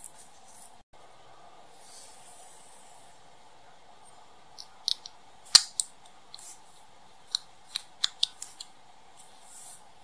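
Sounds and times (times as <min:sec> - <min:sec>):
faint room tone hiss: 0:00.0 - 0:10.0
soft rustle: 0:09.1 - 0:09.9.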